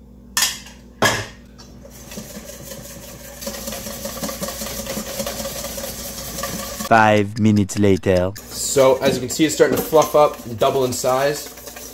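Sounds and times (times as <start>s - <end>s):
wire whisk clinking in metal bowl: 2.1s - 6.9s, 8.7s - 11.9s.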